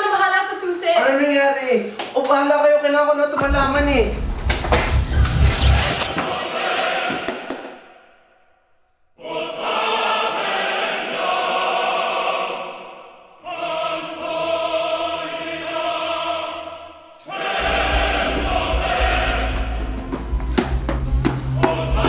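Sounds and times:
deep bass: 3.4s - 6.2s, 17.6s - 22.0s
choir-like chords: 3.4s - 8.0s, 9.2s - 20.2s, 21.6s - 22.0s.

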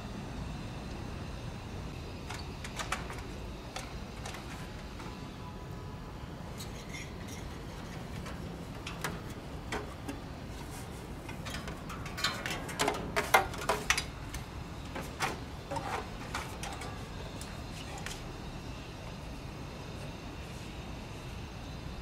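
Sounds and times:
steady low hum: 0.0s - 22.0s
knocks and light clatter: 6.6s - 18.2s.

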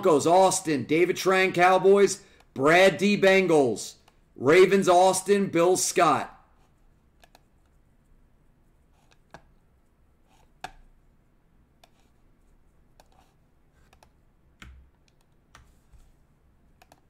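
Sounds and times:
keyboard and mouse clicks: 7.2s - 7.5s, 12.9s - 15.7s, 16.8s - 17.0s.

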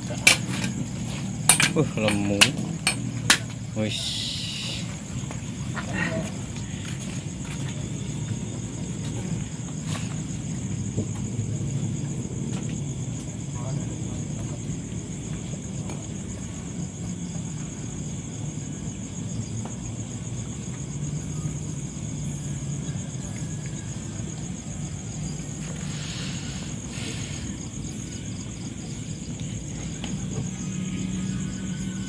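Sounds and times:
crickets trilling: 0.0s - 32.0s
rustling hisses: 3.9s - 5.2s, 25.4s - 27.9s.

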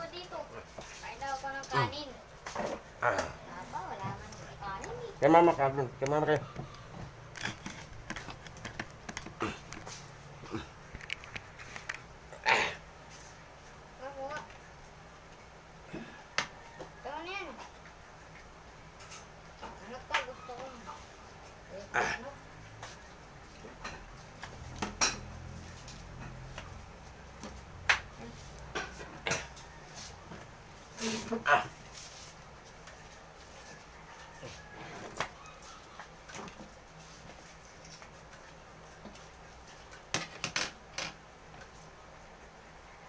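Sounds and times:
eating clicks and smacks: 6.0s - 12.1s.

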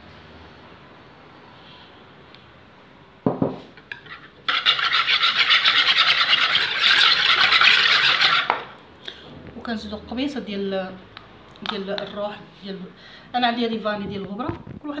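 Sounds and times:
whisk beating in a plastic bowl: 4.5s - 8.8s.

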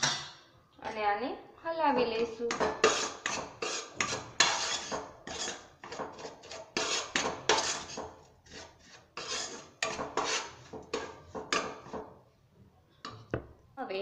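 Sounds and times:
spoon scraping a pan: 2.0s - 12.2s.

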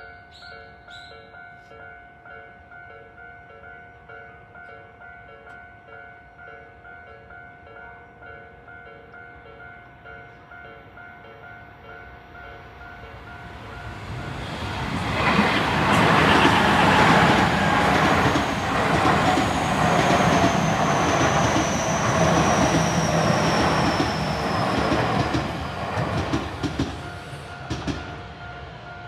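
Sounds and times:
crossing warning bells: 0.0s - 29.0s
high train whine: 9.5s - 29.0s
train wheels clattering: 13.5s - 28.2s.

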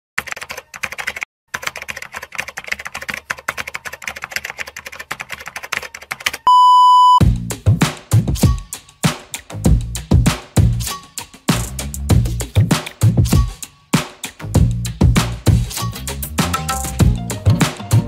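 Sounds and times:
rapid typing clicks: 0.2s - 6.5s
test-tone beep: 6.5s - 7.2s.

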